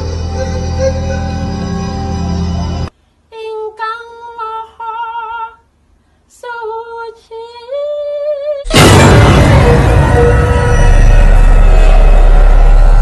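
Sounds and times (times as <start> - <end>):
loud burst of music: 8.7 - 13.0.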